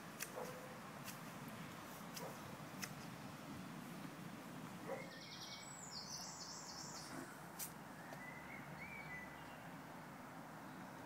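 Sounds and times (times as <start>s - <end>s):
outdoor background hum: 0.0s - 11.0s
songbird singing: 4.5s - 11.0s.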